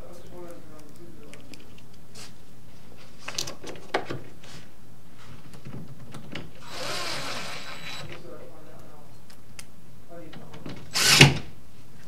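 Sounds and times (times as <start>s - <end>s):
cordless drill driving screw: 6.6s - 8.2s, 11.0s - 11.3s.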